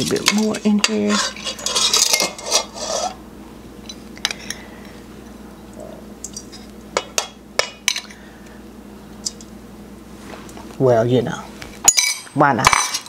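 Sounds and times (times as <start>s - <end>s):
metal spoon scraping bowl: 0.2s - 3.2s.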